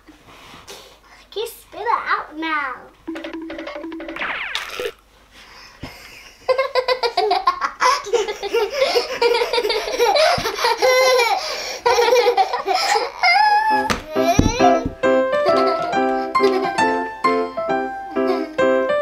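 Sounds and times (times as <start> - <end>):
girls laughing: 5.8 - 13.2.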